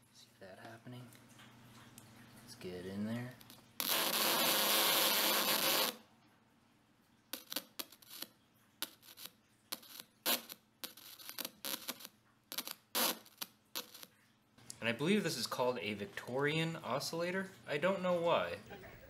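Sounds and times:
speaker crackles and pops: 0:03.2 - 0:06.4, 0:07.0 - 0:19.0.

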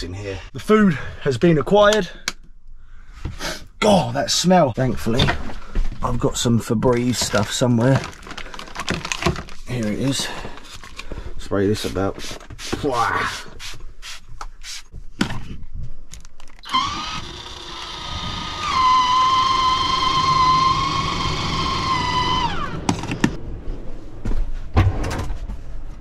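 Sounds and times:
vent fan motor whining: 0:16.6 - 0:23.4.

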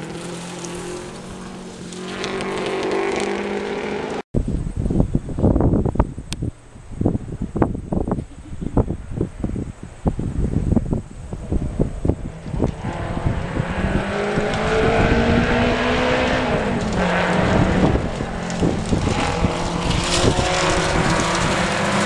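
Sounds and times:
wind thumps on microphone: 0:04.4 - 0:22.0
race car engine running hard: 0:11.3 - 0:22.0.

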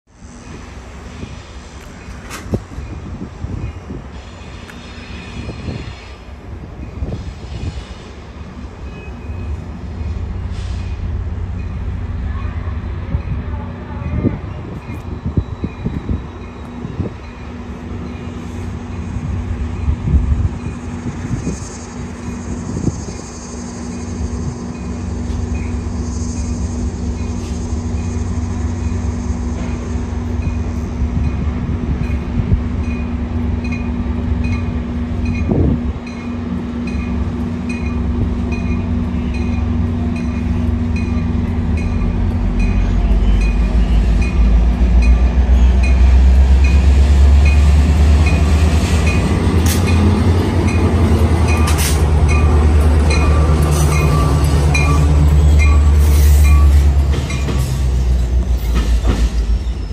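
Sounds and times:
diesel locomotive engine rumbling: 0:00.0 - 0:59.9
locomotive bell ringing: 0:32.8 - 0:58.2.

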